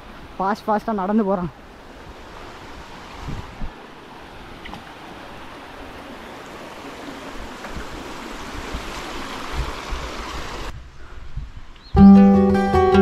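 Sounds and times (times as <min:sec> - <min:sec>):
stream rushing: 0:00.0 - 0:10.8
wind buffeting microphone: 0:02.0 - 0:03.9, 0:07.3 - 0:12.0.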